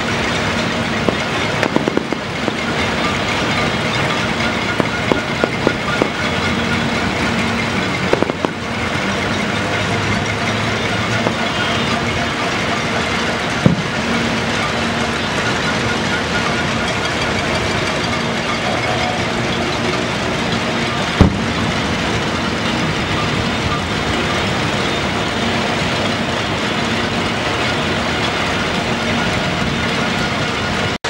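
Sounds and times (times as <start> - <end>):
firework bangs: 0.0 - 15.5, 21.1 - 22.0.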